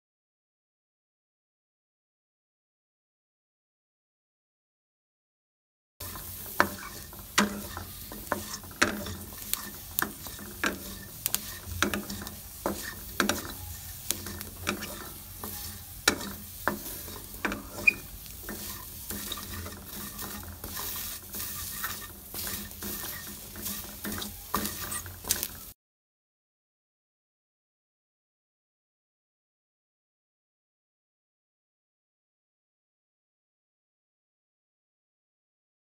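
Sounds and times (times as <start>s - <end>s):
faint sizzle: 6.0s - 25.8s
spatula scraping metal wok: 6.0s - 25.8s.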